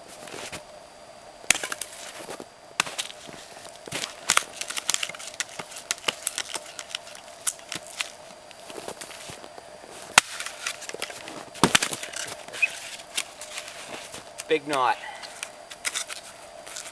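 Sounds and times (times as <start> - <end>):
axe chopping firewood: 10.1 - 13.3.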